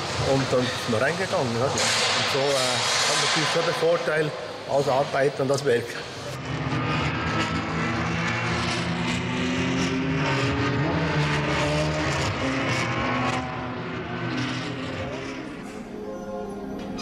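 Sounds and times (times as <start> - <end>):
racing car engines revving and passing: 6.0 - 15.9.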